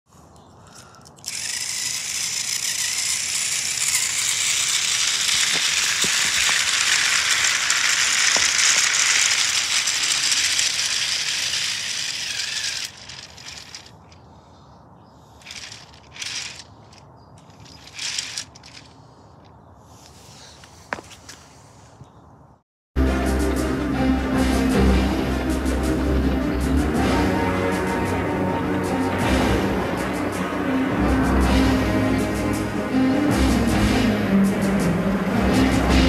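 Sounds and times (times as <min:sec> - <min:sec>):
toy train motor rattling: 0:00.7 - 0:14.2, 0:15.3 - 0:19.5
plastic clicks and rattles: 0:00.8 - 0:14.2, 0:15.4 - 0:18.9.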